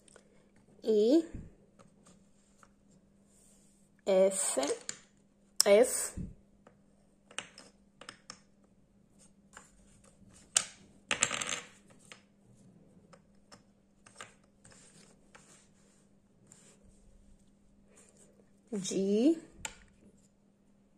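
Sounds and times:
wooden puzzle pieces clicking: 7.3s - 8.5s.

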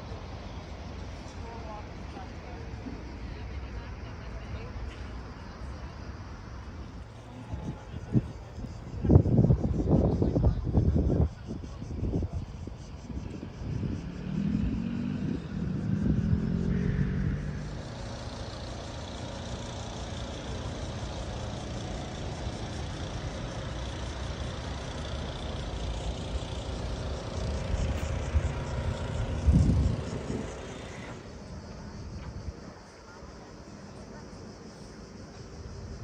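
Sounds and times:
distant road traffic hum: 0.0s - 36.0s.

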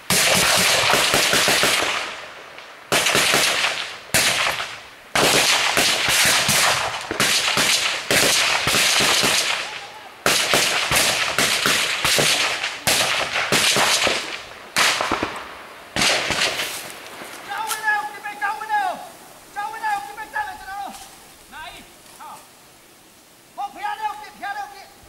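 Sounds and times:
automatic gunfire bursts: 0.1s - 2.2s, 2.9s - 15.4s.

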